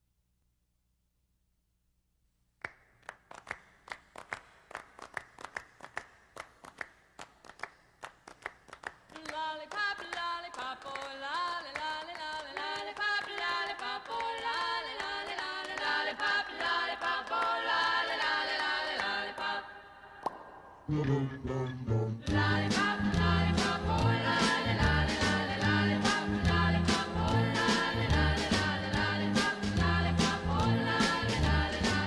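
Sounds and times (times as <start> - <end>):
clapping beat: 2.6 - 19.6, 22.3 - 32.0
voices singing in harmony: 12.5 - 20.2, 20.9 - 32.0.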